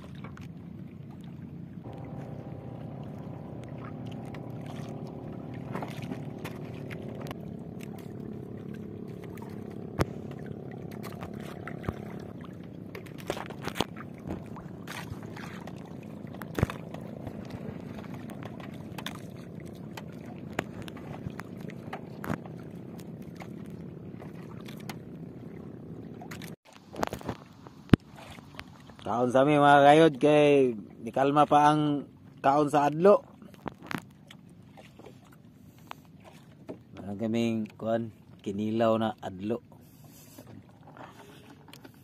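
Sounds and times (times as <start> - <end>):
water sloshing and dripping: 0.0 - 30.0, 31.8 - 42.0
faint steady hum: 1.8 - 11.0.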